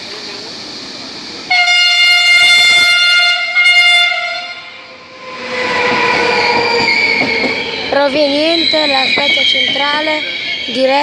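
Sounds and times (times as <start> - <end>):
train rumbling past: 0.0 - 11.0
train horn blasts: 1.5 - 7.6.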